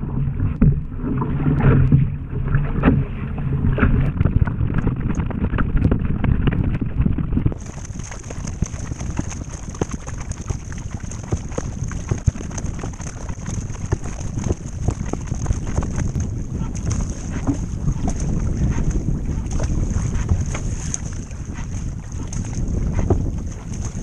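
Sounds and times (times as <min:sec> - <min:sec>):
low rumble: 0:00.0 - 0:24.0
drops pattering on hull: 0:00.4 - 0:24.0
water splashing and dripping: 0:07.5 - 0:24.0.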